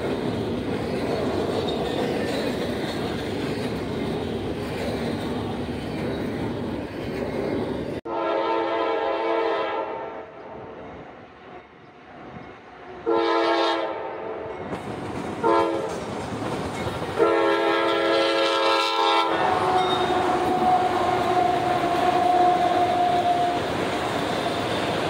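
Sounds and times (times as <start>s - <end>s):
train wheels on rails: 0.0s - 8.0s, 14.4s - 25.0s
locomotive air horn blasts: 8.1s - 10.4s, 13.0s - 14.6s, 15.4s - 15.9s, 17.2s - 23.7s.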